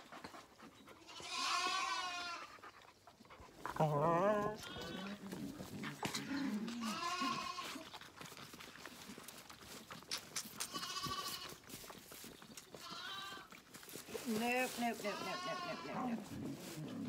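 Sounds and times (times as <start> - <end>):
lambs bleating: 1.0 - 2.5, 4.4 - 5.3, 6.1 - 7.9, 10.6 - 11.6, 12.8 - 13.6, 14.8 - 16.2.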